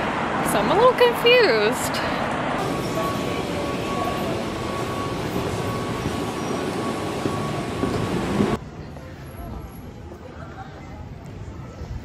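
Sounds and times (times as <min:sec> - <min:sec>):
vehicle rumble: 0:00.0 - 0:10.4
faint steady whine: 0:02.6 - 0:08.6.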